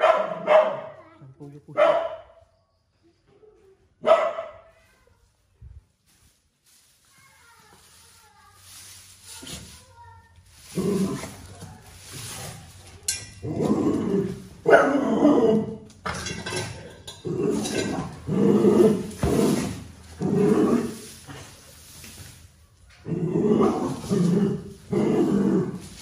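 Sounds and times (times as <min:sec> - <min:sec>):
dogs barking and growling: 0:00.0 - 0:01.0, 0:10.6 - 0:21.6, 0:23.0 - 0:26.0.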